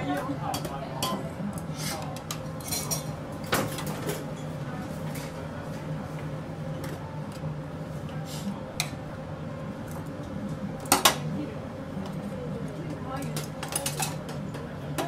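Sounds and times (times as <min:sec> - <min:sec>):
kitchen hum: 0:00.0 - 0:15.0
metal tongs clinking on dishes: 0:01.8 - 0:03.1, 0:13.4 - 0:14.3.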